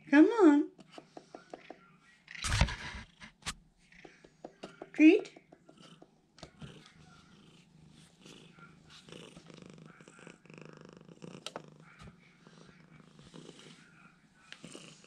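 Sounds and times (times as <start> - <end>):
cat purring: 5.2 - 15.0.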